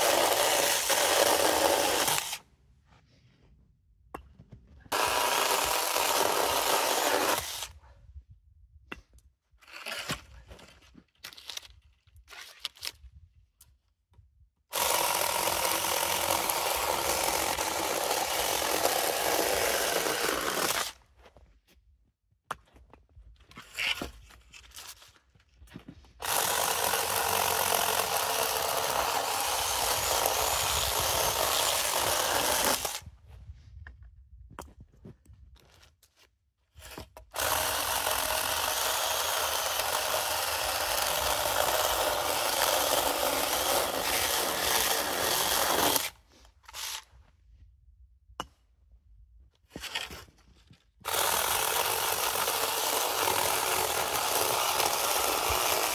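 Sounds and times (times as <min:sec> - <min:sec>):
electric chainsaw cutting wood: 0:00.0 - 0:02.4, 0:04.9 - 0:07.7, 0:14.7 - 0:21.0, 0:26.2 - 0:33.0, 0:37.3 - 0:47.0, 0:51.0 - 0:55.9.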